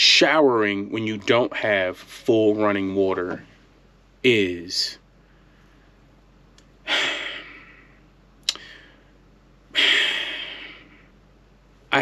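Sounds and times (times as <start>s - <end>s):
man sighing heavily: 6.9s - 7.9s
mouth click: 8.4s - 8.7s.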